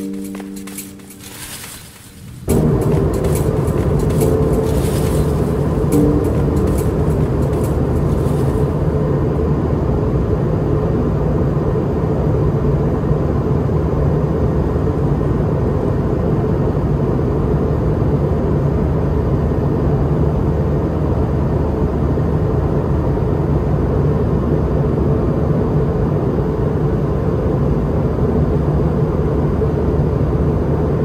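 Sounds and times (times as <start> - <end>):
low hum tones: 0.0 - 13.7
jet engine cabin drone: 2.5 - 31.0.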